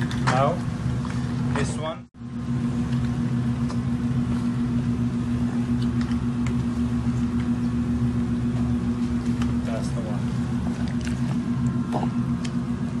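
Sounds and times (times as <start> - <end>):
kitchen machine humming: 0.0 - 13.0.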